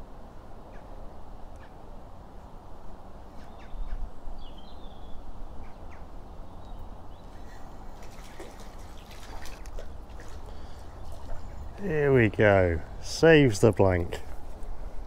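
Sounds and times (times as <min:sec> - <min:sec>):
bird chirp: 0:03.4 - 0:07.6
water splashing and dripping: 0:07.9 - 0:11.8.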